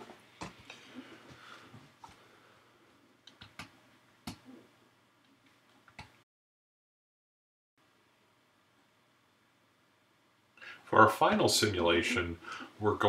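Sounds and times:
faint room hiss: 0.0s - 6.2s, 7.8s - 13.0s
keyboard and mouse clicks: 3.2s - 4.5s, 5.8s - 6.2s.

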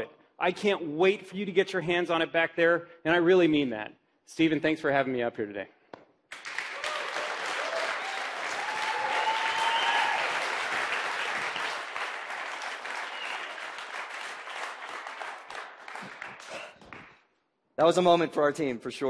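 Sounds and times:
audience applauding: 6.3s - 17.2s.

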